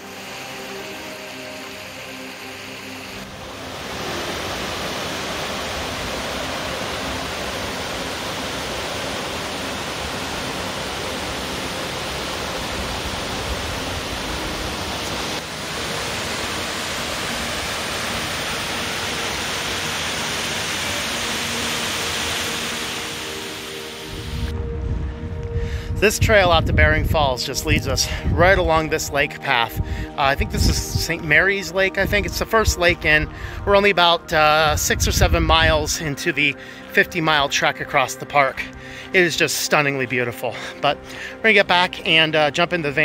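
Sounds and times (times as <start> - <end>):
waterfall rushing water: 0.0 - 24.6
music: 0.0 - 43.0.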